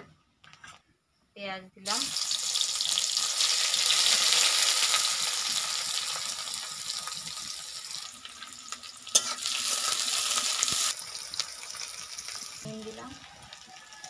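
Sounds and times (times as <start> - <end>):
onions sizzling in hot oil: 1.8 - 14.0.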